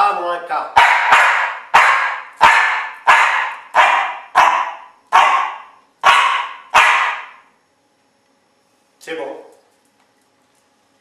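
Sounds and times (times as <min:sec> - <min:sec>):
dog barking: 0:00.8 - 0:07.5.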